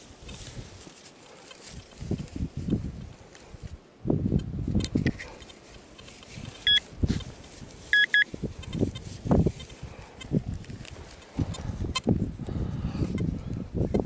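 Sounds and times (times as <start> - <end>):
hands rustling in grass and soil: 0.0 - 14.0
metal detector beeping: 6.6 - 6.9, 7.9 - 8.3.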